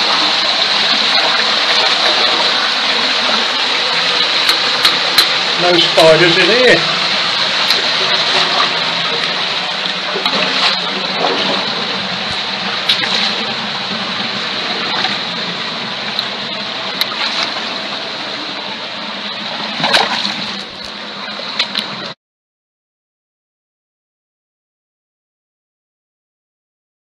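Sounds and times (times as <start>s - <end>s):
stream water rushing: 0.0s - 22.2s
splashing while wading: 7.0s - 18.6s, 19.4s - 21.9s.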